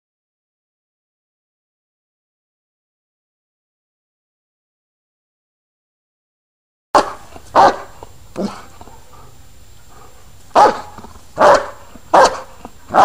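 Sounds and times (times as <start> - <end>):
dog barking: 7.0 - 9.4, 10.0 - 13.0.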